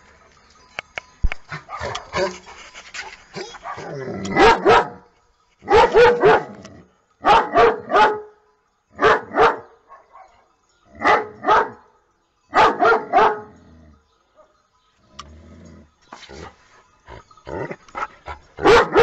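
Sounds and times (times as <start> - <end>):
dog barking: 3.4 - 5.0, 5.6 - 6.6, 7.2 - 8.3, 9.0 - 10.4, 11.0 - 11.8, 12.5 - 13.5, 18.6 - 19.0.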